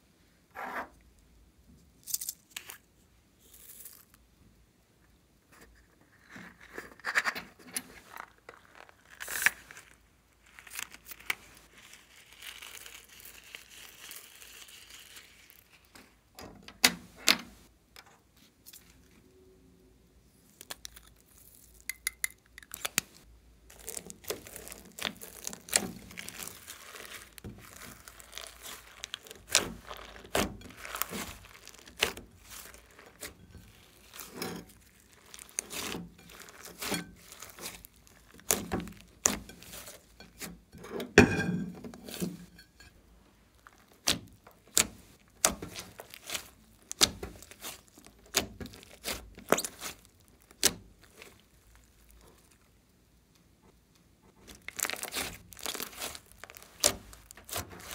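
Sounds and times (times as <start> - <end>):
rubber balloon crinkling: 7.9 - 16.2, 22.7 - 40.6, 43.5 - 52.7, 54.3 - 57.9
slime squishing with sticky pops: 20.5 - 40.6, 43.5 - 52.7, 54.3 - 57.9.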